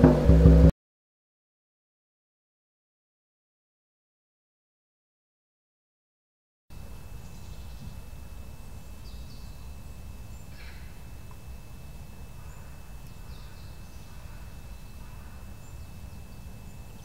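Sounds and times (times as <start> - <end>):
steady low rumble: 0.0 - 0.7
short high bird calls: 10.3 - 11.0.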